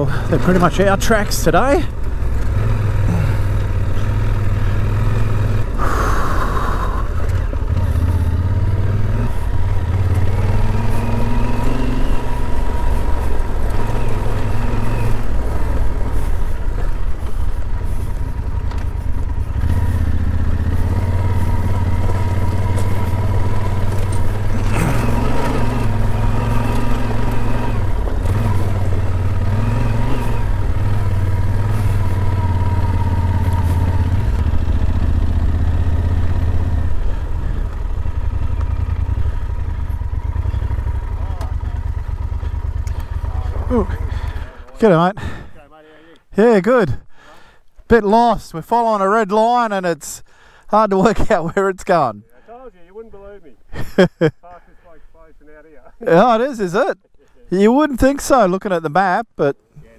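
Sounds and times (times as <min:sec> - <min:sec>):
motorcycle engine running: 0:00.0 - 0:45.5.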